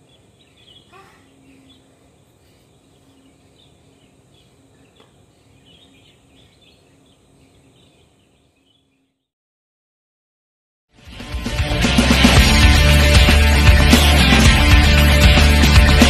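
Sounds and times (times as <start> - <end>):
faint steady hum: 0.0 - 9.0
small birds chirping: 0.0 - 9.3.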